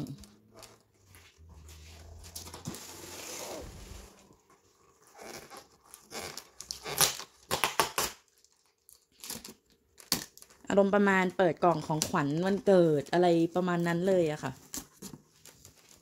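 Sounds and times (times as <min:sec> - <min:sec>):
packing tape peeling off box: 0:05.2 - 0:08.3.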